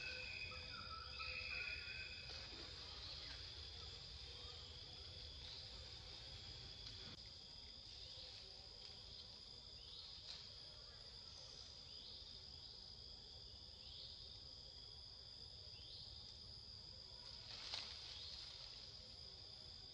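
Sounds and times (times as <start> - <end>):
insects droning: 0.0 - 19.9.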